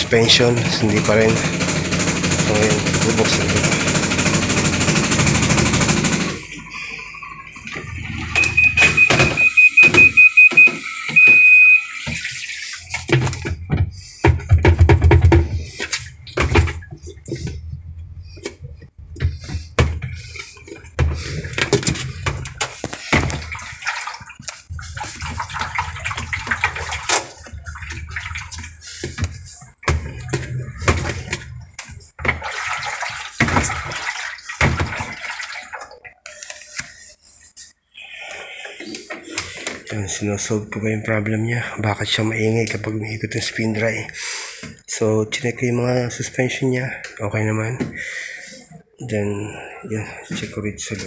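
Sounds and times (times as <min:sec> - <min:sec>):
washing machine spinning: 0:00.0 - 0:37.6
control panel beeps: 0:08.3 - 0:12.0.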